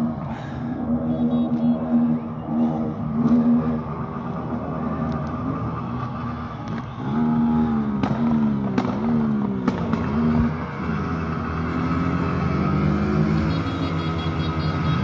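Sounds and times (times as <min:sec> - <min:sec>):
motorcycle engines revving: 0:00.0 - 0:15.0
horns sounding: 0:06.0 - 0:08.0, 0:13.2 - 0:15.0.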